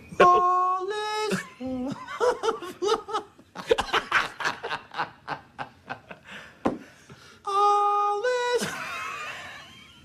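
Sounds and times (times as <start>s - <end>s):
men laughing: 1.3s - 6.5s, 8.6s - 10.0s.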